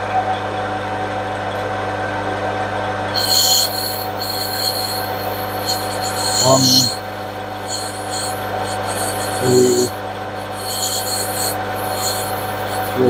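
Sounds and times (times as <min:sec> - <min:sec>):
lathe motor hum: 0:03.2 - 0:13.0
tool squealing on brass: 0:03.2 - 0:13.0.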